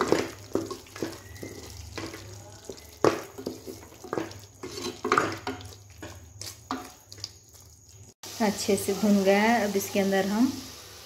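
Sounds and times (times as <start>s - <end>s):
spatula scraping pot: 0.0s - 8.2s
meat sizzling in oil: 0.0s - 11.0s.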